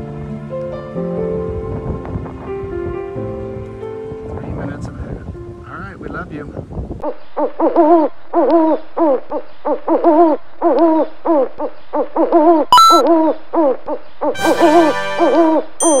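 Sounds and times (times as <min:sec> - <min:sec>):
owl hooting: 0:07.4 - 0:13.8
jingling chime with ding: 0:12.8 - 0:13.0, 0:15.8 - 0:16.0.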